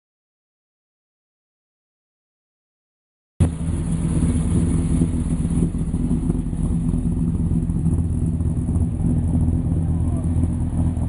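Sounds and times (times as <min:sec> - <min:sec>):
car engine running at low revs: 0:03.4 - 0:11.0.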